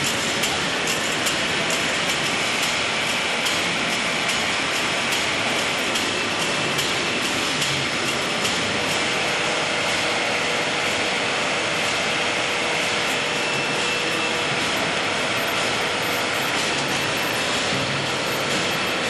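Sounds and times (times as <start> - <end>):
egg-breaking machine running: 0.0 - 19.0
eggs and trays clicking: 14.7 - 17.5.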